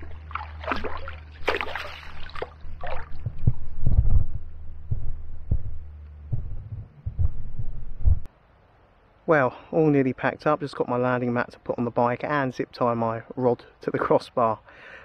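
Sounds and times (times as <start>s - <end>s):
water splashing: 0.0s - 4.3s
dull low thumps: 0.0s - 8.3s.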